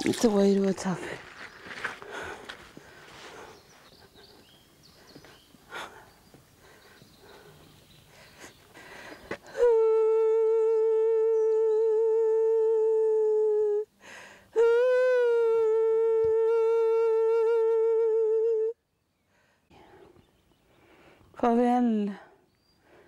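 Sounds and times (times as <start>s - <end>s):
woman breathing: 1.1s - 9.7s, 13.9s - 14.6s, 19.2s - 21.4s, 22.2s - 23.0s
woman singing long high notes: 9.6s - 13.9s, 14.6s - 18.8s.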